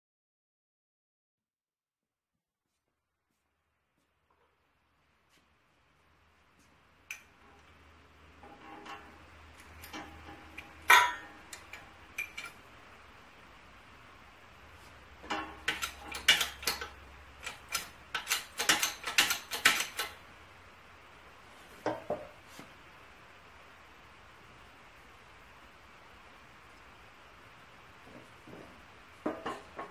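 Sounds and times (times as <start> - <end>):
metal clanks and clinks: 8.4 - 12.6, 15.2 - 20.1.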